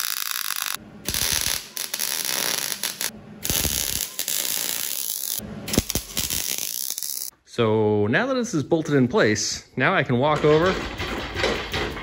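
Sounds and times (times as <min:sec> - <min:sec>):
welder arc crackling: 0:00.0 - 0:07.3.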